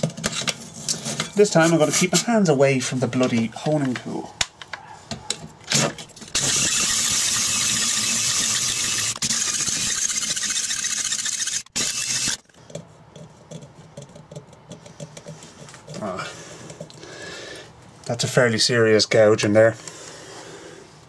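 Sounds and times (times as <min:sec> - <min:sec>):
drill honing cylinder scraping: 0:06.4 - 0:12.4.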